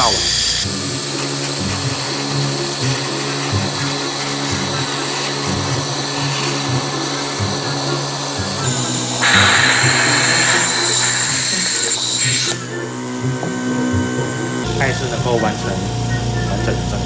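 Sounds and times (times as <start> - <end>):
loud air hiss: 0.0 - 5.5, 7.4 - 12.7
vacuum pump humming and hissing: 0.0 - 17.0.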